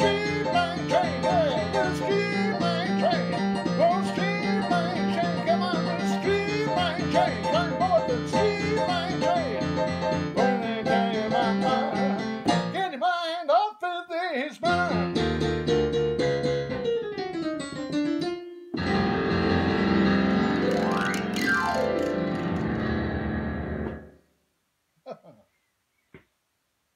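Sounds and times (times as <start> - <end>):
bluesy digital piano: 0.0 - 12.9, 14.6 - 24.2
man singing: 0.0 - 15.3.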